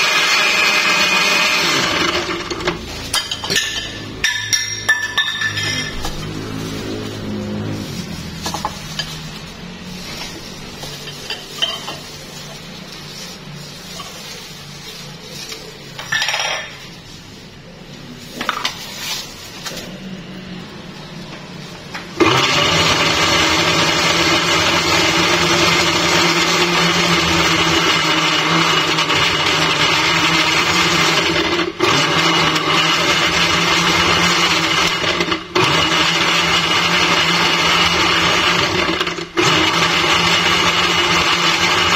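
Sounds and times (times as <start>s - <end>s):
blender running: 0.0s - 11.2s, 22.2s - 41.9s.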